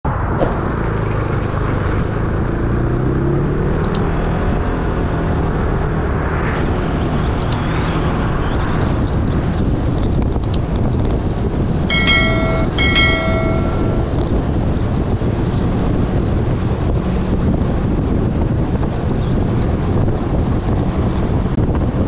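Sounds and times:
short double ticks: 3.8s - 4.0s.

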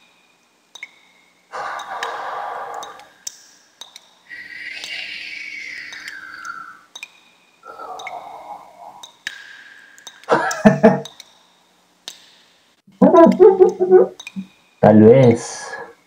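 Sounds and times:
faint clicks: 5.6s - 7.2s, 8.0s - 8.3s
loud wordless vocal outburst: 7.6s - 9.0s.

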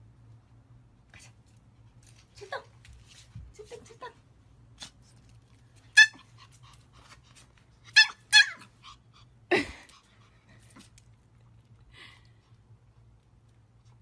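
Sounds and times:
puppy yipping: 5.9s - 6.4s, 7.8s - 8.8s.

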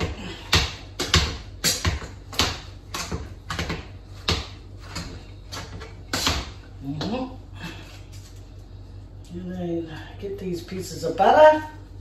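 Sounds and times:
potato masher knocking pot: 0.0s - 6.5s.

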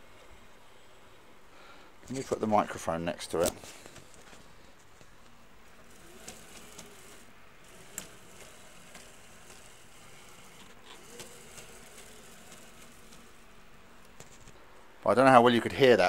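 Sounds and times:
printer carriage rasping: 5.7s - 14.4s.

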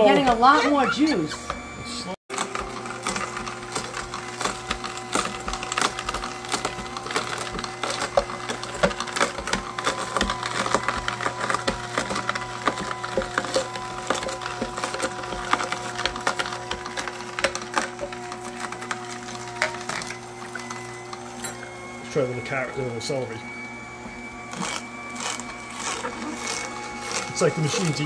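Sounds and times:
juicer motor humming: 0.0s - 28.0s
carrot cracking and snapping: 2.3s - 21.3s.

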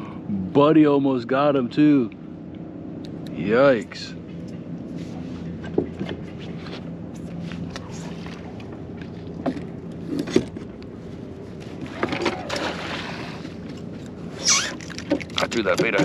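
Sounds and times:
steady low hum: 0.0s - 16.0s
fishing gear clicks and knocks: 13.6s - 16.0s.

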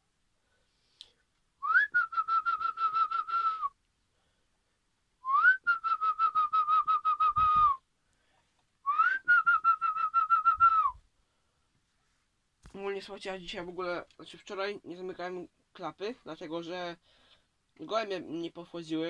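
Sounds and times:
person whistling bird call: 1.6s - 3.8s, 5.2s - 7.8s, 8.9s - 11.0s.

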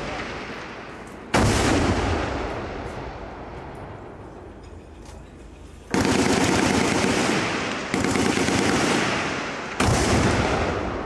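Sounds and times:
automatic machine-gun fire: 5.9s - 10.8s.

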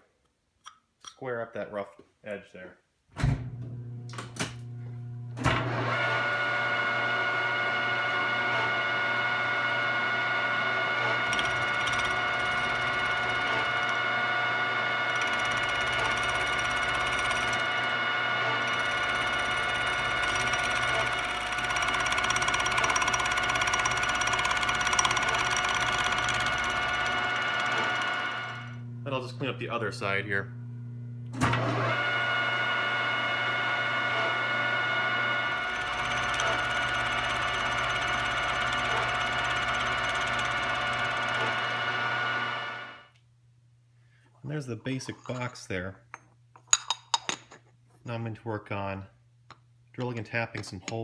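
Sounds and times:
spindle motor hum: 3.3s - 43.0s
end mill cutting metal whine: 5.4s - 29.8s, 31.4s - 42.9s.

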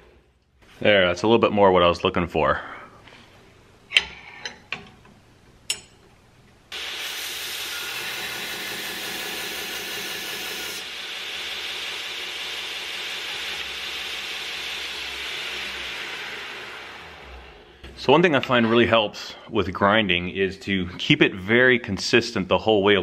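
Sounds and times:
belt grinder hissing on steel: 6.7s - 17.7s.

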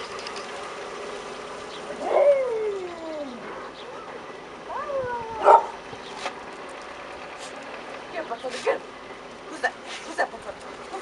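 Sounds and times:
dog whining: 1.9s - 5.8s
dog barking: 5.4s - 5.8s.

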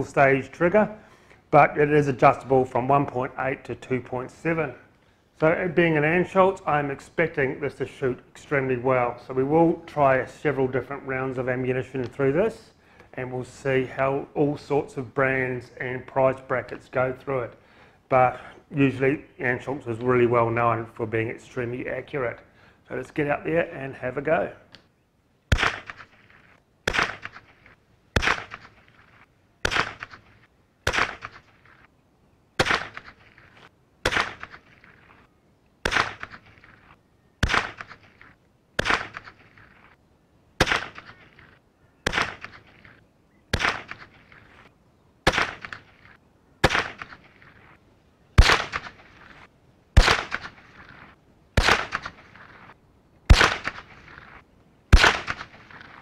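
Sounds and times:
rifle shots cracking: 25.5s - 26.1s, 26.8s - 28.8s, 29.6s - 31.6s, 32.6s - 33.3s, 34.0s - 35.1s, 35.8s - 36.7s, 37.4s - 39.9s, 40.6s - 41.4s, 42.0s - 44.3s, 45.2s - 47.7s, 48.4s - 56.0s.

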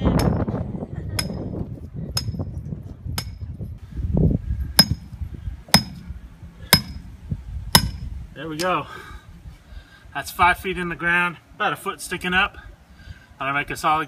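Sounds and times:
hammer striking metal rod: 2.2s - 2.4s, 4.8s - 5.1s, 5.7s - 6.1s, 6.7s - 7.1s, 7.8s - 8.0s.

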